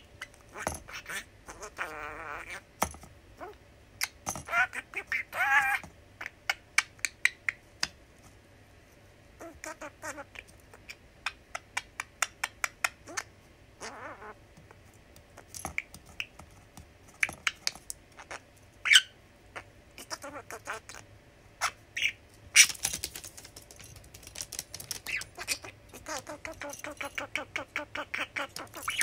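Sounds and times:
budgie chirping: 17.2s - 21.0s, 24.8s - 29.0s.

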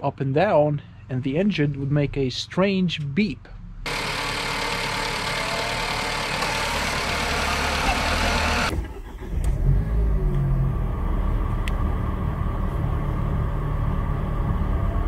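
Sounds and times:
car engine idling: 3.8s - 9.3s
hissy engine bay sound: 3.9s - 9.4s.

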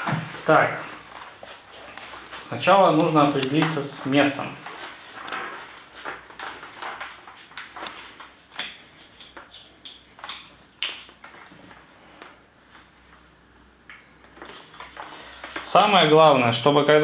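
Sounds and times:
helmet handling rustles and knocks: 0.0s - 12.4s.

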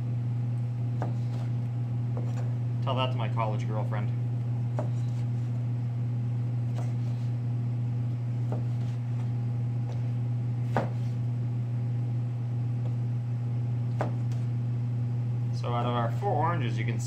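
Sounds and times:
low hum of kitchen equipment: 0.0s - 17.0s
knife knocking on cutting board: 10.7s - 11.1s.

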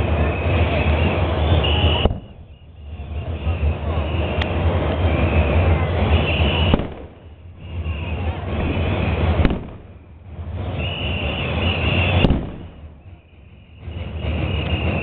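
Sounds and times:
heavy low rumble: 0.0s - 15.0s
sharp cracks: 1.9s - 2.5s, 6.5s - 7.3s, 9.4s - 10.0s, 12.2s - 13.0s.

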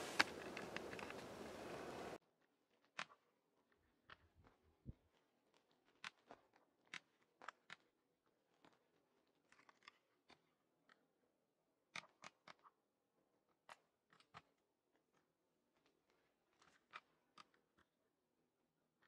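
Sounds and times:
faint sharp clicks: 0.0s - 2.2s.

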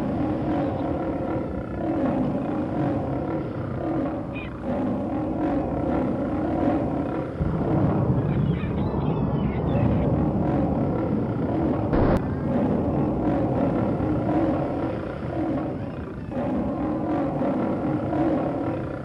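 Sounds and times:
low rumble: 5.0s - 18.6s.

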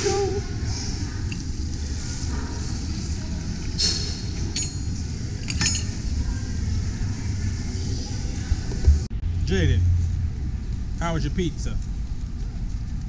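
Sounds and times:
clinks and clacks: 3.8s - 6.0s
low background rumble: 4.4s - 13.0s.

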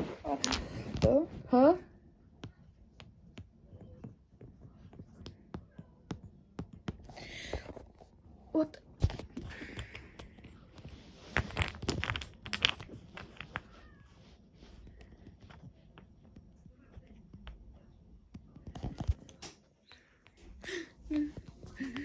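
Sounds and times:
wooden blocks clicking and knocking: 9.2s - 13.8s.

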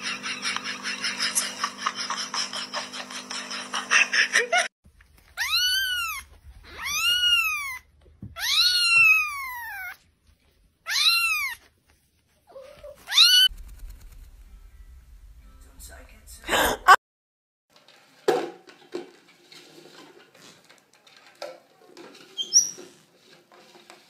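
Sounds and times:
kitten meowing: 5.4s - 10.0s, 10.9s - 11.6s, 12.6s - 13.5s
rustling: 9.0s - 16.4s.

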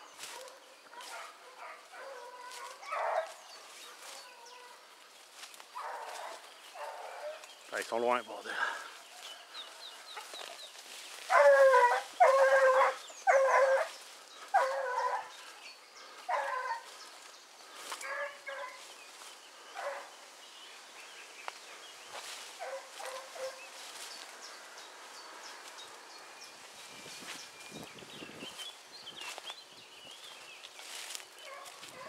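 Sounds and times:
hunting dogs baying: 0.2s - 4.9s, 5.6s - 7.5s, 11.2s - 18.9s, 19.7s - 20.2s, 22.5s - 24.3s, 31.4s - 32.0s.

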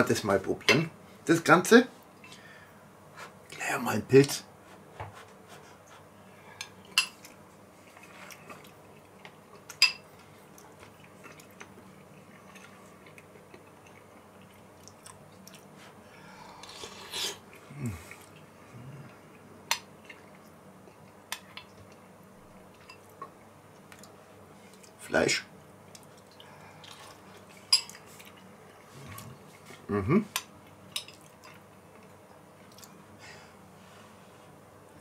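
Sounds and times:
quiet chewing: 5.2s - 25.0s, 25.8s - 33.1s
person humming: 17.7s - 19.1s, 29.9s - 30.3s.

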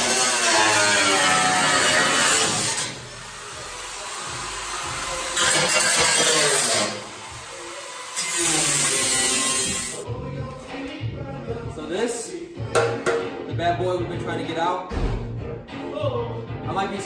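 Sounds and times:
angle grinder cutting sheet steel: 0.0s - 10.0s.

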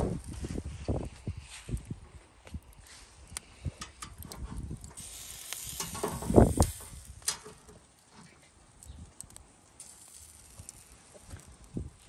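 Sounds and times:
soft hiss: 4.8s - 12.0s
metal grill basket clattering: 5.0s - 7.8s.

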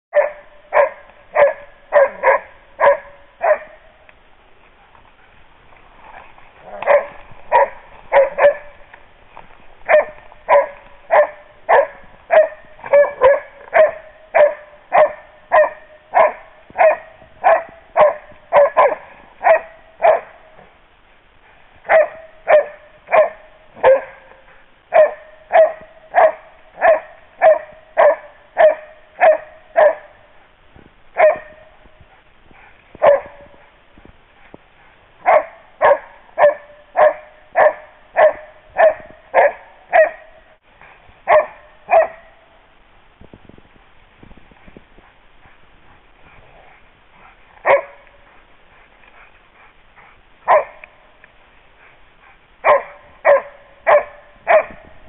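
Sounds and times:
dog barking: 0.1s - 3.9s, 6.6s - 8.8s, 9.8s - 20.5s, 21.9s - 30.3s, 31.2s - 31.8s, 33.0s - 33.7s, 35.2s - 40.6s, 41.3s - 42.5s, 47.2s - 48.3s, 50.4s - 51.0s, 52.6s - 54.9s.

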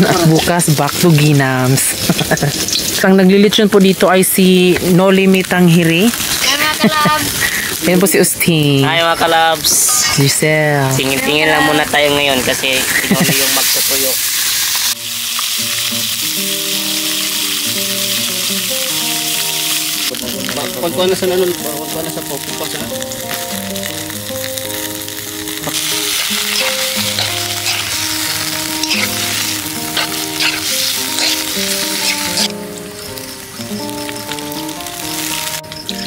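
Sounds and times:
meat sizzling in a pan: 0.0s - 36.0s
background music with melody: 15.0s - 36.0s.

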